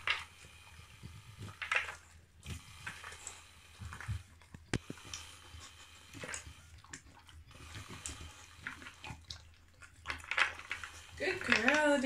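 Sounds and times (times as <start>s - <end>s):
dog crunching food: 1.0s - 3.2s, 3.8s - 12.0s.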